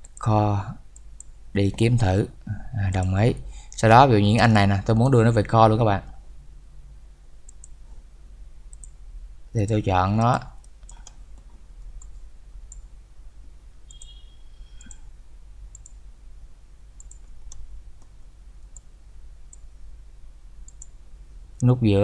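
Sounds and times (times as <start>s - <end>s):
computer mouse clicking: 0.0s - 0.3s, 7.5s - 7.8s, 8.7s - 9.0s, 9.7s - 12.9s, 13.9s - 14.2s, 14.8s - 15.1s, 15.7s - 16.0s, 17.0s - 18.9s, 20.7s - 21.0s
low steady hum: 0.0s - 22.0s.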